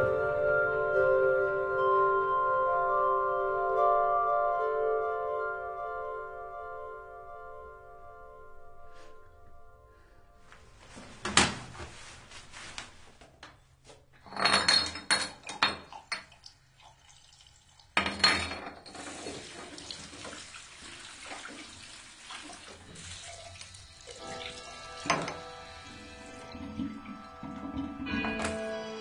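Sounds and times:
glass bottles clattering on sink: 14.2 - 16.4, 18.0 - 19.5, 25.0 - 25.5
water running into basin: 15.2 - 28.5
faint music: 23.8 - 29.0.

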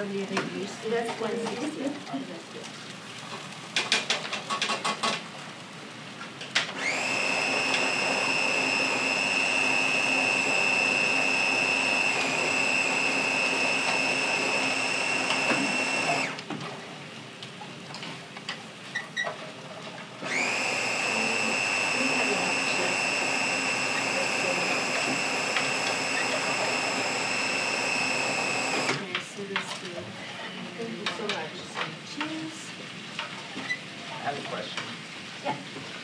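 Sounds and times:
chopper motor whine: 6.8 - 16.4, 20.2 - 29.0.

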